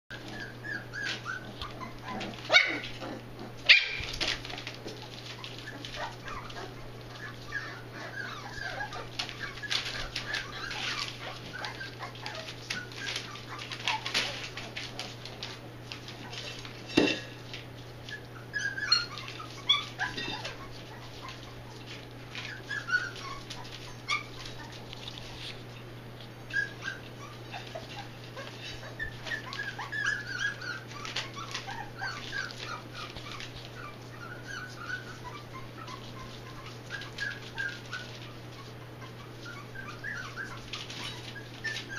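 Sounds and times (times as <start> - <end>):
puppies whimpering and squeaking: 0.1 - 41.9
newspaper crinkling: 3.9 - 7.6, 8.5 - 16.9.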